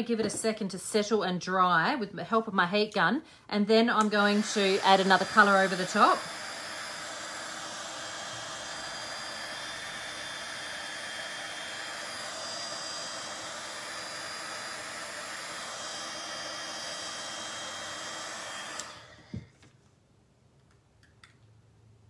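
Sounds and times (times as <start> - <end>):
heat gun blowing: 3.9 - 19.6.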